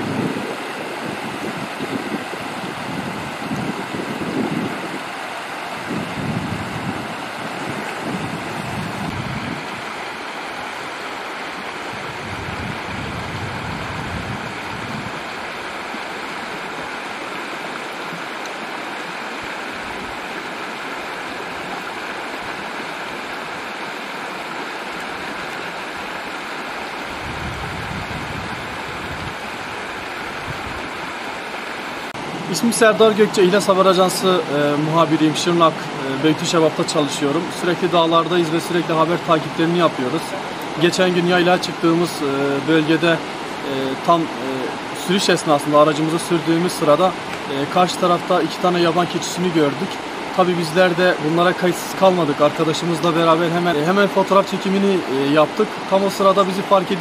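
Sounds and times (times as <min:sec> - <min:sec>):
wind buffeting microphone: 0:00.0 - 0:10.1, 0:11.7 - 0:17.0, 0:26.8 - 0:31.5
mountain stream rushing: 0:00.0 - 0:57.0.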